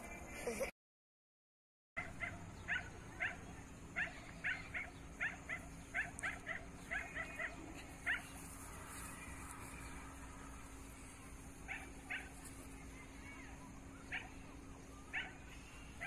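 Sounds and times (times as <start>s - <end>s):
faint steady hum: 2.0s - 16.0s
puppies yipping: 2.2s - 10.0s, 11.6s - 16.0s.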